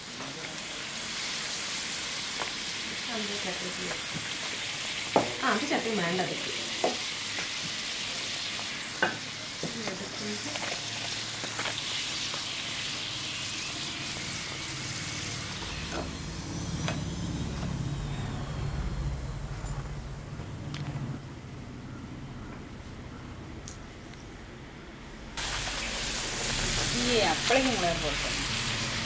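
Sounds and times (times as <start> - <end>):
oil sizzling: 0.0 - 20.3, 25.4 - 29.0
low hum: 14.4 - 25.4.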